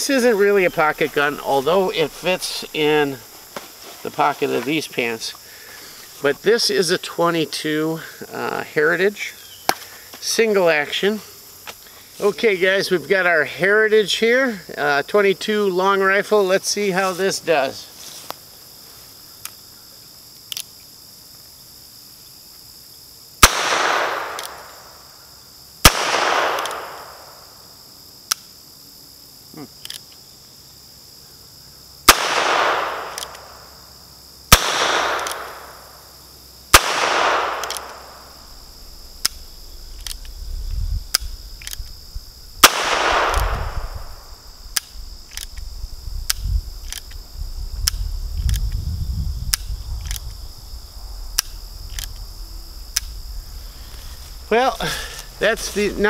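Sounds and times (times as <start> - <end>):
insect chorus: 0.0 - 56.0
revolver gunshots with echo: 23.4 - 24.7, 25.9 - 27.2, 32.1 - 33.2, 34.5 - 35.8, 36.7 - 38.2, 42.6 - 44.2.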